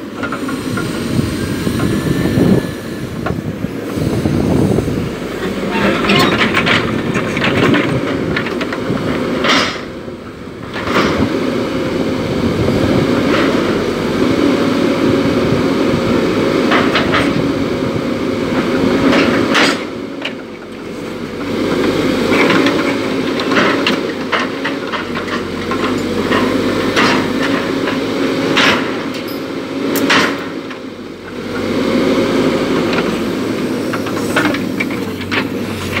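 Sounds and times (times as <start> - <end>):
excavator diesel engine whine: 0.0 - 36.0
metallic clanks and squeaks: 5.4 - 7.8.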